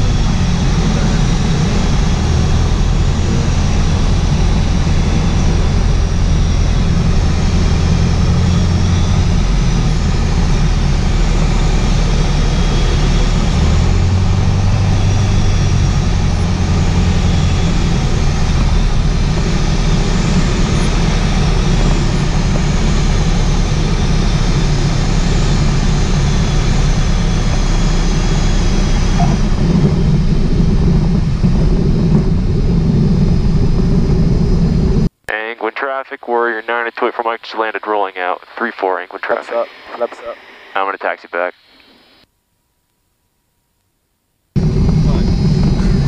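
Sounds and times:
light aircraft engine and propeller: 0.0 - 41.5, 44.6 - 46.0.

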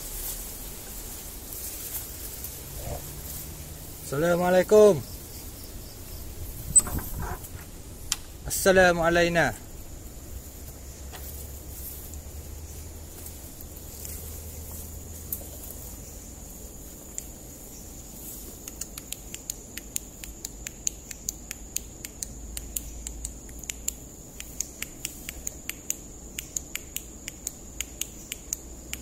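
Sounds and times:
crickets droning: 0.0 - 29.0
sharp clicks: 18.6 - 29.0.

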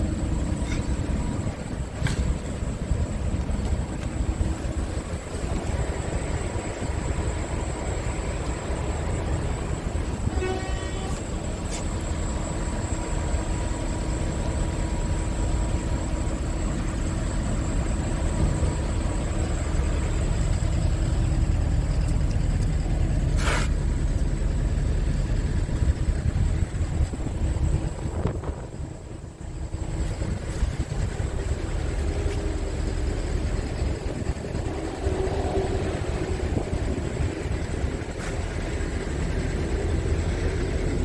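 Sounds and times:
steady low rumble: 0.0 - 41.0
short pitched toot: 10.2 - 11.8
burst of hiss: 23.3 - 23.8.

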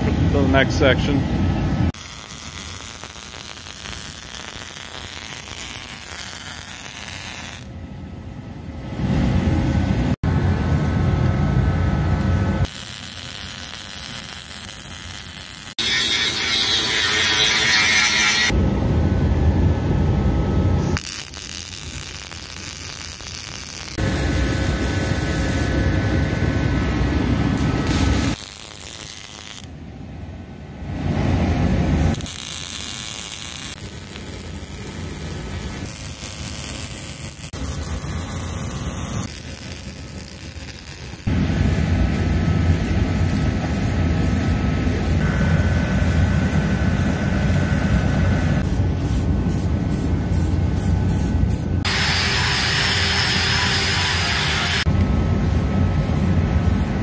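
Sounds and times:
welding crackling: 2.0 - 7.7, 12.6 - 18.6, 21.0 - 25.9, 27.6 - 29.7, 32.1 - 41.5, 51.8 - 54.9
angle grinder grinding metal: 12.7 - 18.6, 51.9 - 54.9.

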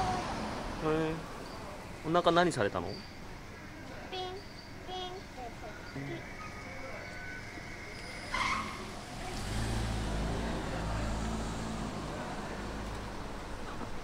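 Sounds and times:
car driving past: 7.8 - 14.0
brief high-pitched squeak: 8.0 - 8.9.

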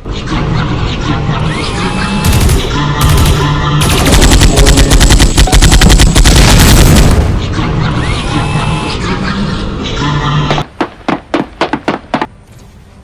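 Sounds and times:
cartoon machine-gun fire: 2.2 - 7.3.

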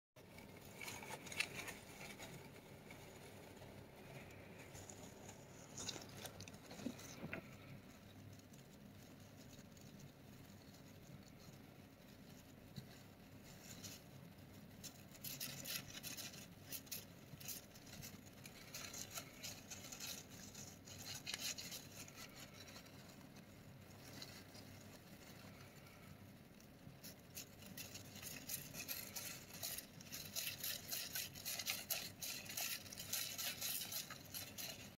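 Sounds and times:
hamster digging through paper bedding: 0.2 - 35.0.

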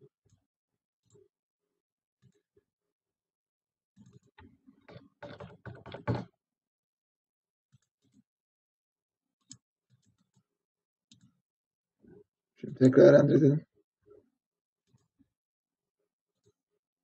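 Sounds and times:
computer keyboard keystrokes: 5.2 - 6.2.

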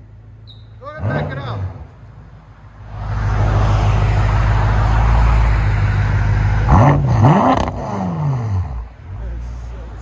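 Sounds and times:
car engine deep drone: 0.0 - 10.0
engine revving: 0.9 - 2.0, 2.9 - 8.9.

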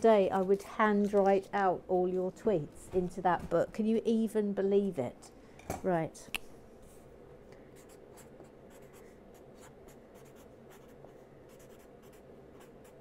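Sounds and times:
low steady hum: 0.0 - 13.0
marker scratching on paper: 7.8 - 13.0.

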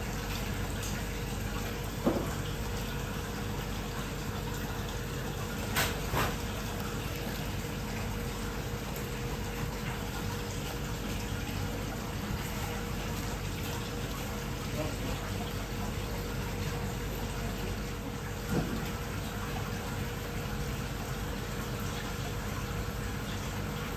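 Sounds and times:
running water rushing: 0.0 - 23.9.

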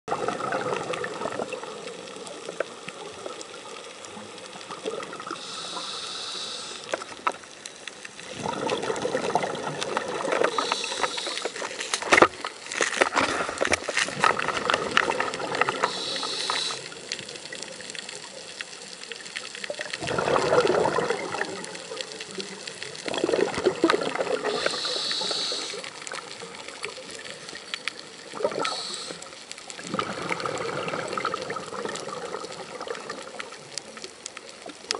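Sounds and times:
exhaled bubbles rushing: 0.1 - 3.6, 4.6 - 5.4, 8.2 - 11.3, 14.1 - 18.2, 19.6 - 25.4, 28.2 - 33.8
regulator inhale hiss: 5.3 - 7.3, 10.4 - 12.0, 15.8 - 17.4, 24.4 - 26.1, 28.6 - 29.5.

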